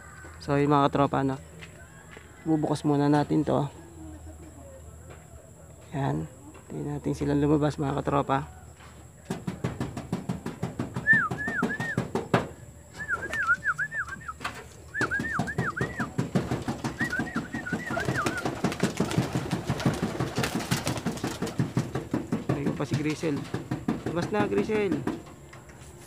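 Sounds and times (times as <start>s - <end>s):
wings flapping: 9.3s - 25.3s
pigeons cooing: 11.0s - 25.2s
wing claps: 15.0s - 25.1s.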